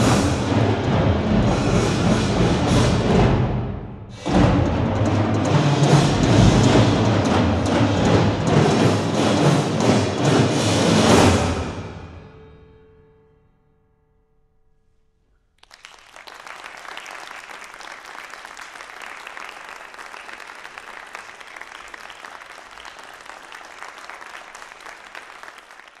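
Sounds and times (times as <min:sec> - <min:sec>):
percussion ensemble notes ringing: 0:00.0 - 0:12.4
audience applauding: 0:15.6 - 0:26.0.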